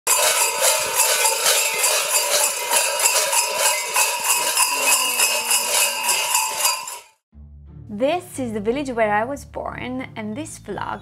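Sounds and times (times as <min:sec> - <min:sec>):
metal bells jangling with steps: 0:00.1 - 0:07.2.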